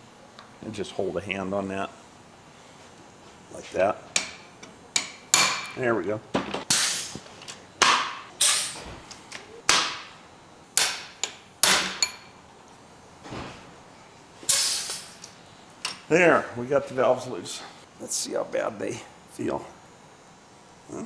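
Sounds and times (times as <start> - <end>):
hammer striking metal: 10.8 - 12.3.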